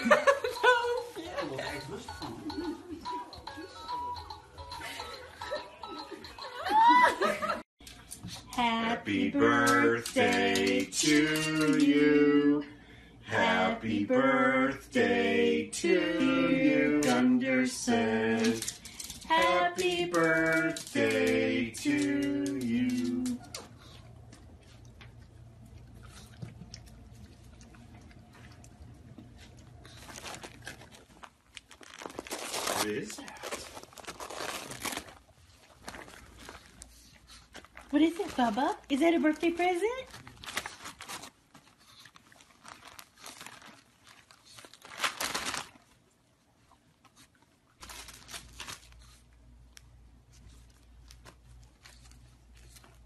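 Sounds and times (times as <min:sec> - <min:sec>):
wrapping paper crinkling and tearing: 0:18.1 - 0:23.7, 0:29.8 - 0:46.1, 0:47.8 - 0:49.4
dog licking and chewing: 0:21.9 - 0:31.8.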